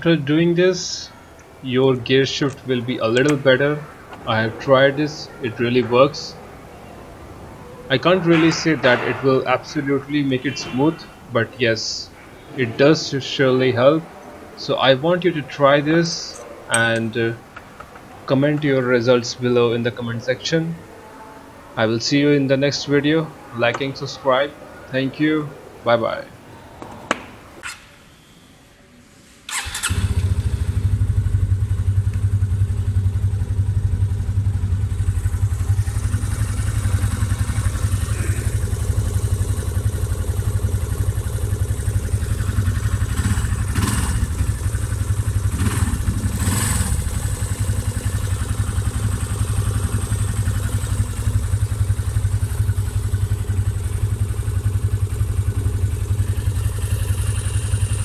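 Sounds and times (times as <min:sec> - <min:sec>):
motorcycle engine starting and idling: 0:02.0 - 0:06.8, 0:08.0 - 0:10.9, 0:29.5 - 0:58.0.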